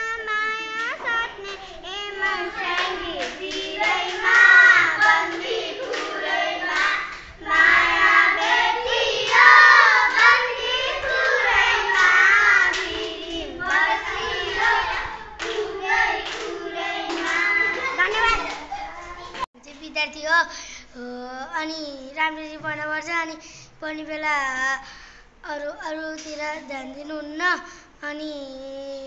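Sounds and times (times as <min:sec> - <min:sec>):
children singing together: 0:00.0 - 0:19.4
hand claps: 0:14.6 - 0:19.5.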